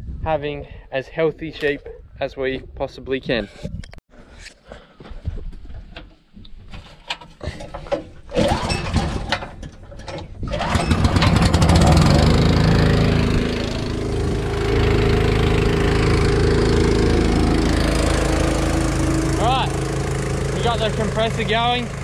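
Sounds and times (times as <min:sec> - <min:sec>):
starter cord pulls and rattles: 0:05.9 - 0:14.5, 0:18.0 - 0:22.0
small engine running: 0:10.6 - 0:22.0.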